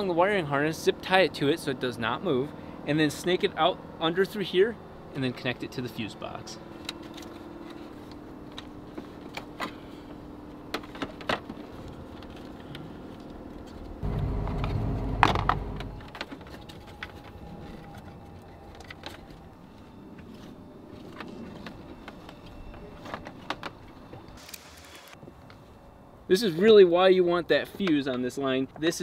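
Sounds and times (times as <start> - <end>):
low rumble: 13.4 - 16.2.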